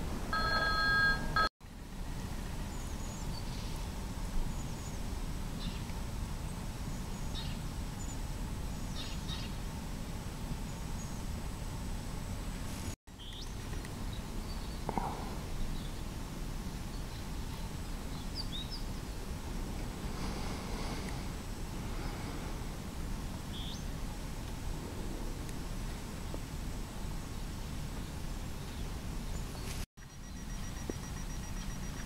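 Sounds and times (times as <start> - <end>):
outdoor background noise: 0.0 - 32.0
ringing tone: 0.3 - 1.5.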